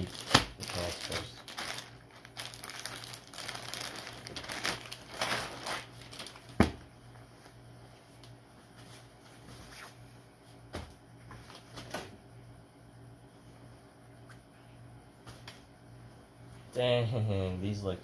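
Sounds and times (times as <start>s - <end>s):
plastic bag crinkling: 0.0s - 6.6s
fabric rustling: 1.5s - 6.5s.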